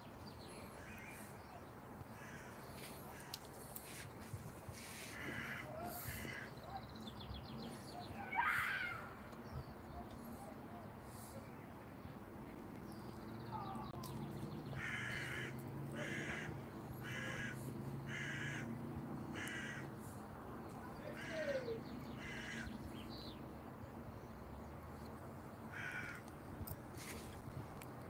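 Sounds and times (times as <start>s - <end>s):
crow cawing: 2.2s - 3.4s, 5.1s - 6.5s, 14.8s - 19.9s, 21.1s - 22.7s, 25.7s - 26.3s.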